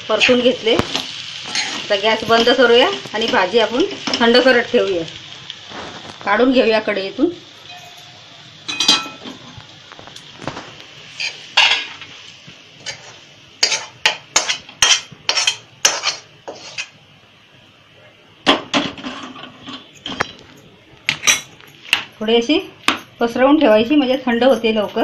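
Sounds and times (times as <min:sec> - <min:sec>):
metal spoon scraping a pan: 0:01.4 - 0:02.5, 0:11.1 - 0:12.1, 0:12.8 - 0:17.0.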